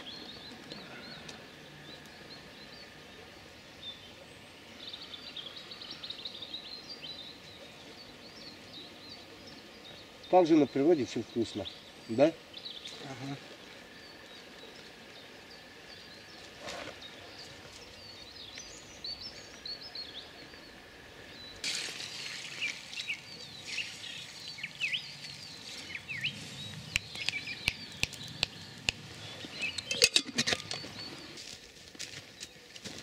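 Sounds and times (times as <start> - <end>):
songbirds chirping: 0.0 - 33.0
sharp clicks and taps: 26.9 - 29.0.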